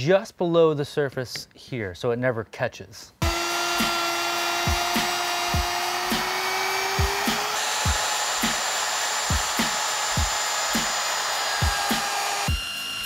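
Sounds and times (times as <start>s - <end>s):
background music with kick drum: 3.2s - 13.0s
router cutting wood: 3.2s - 13.0s.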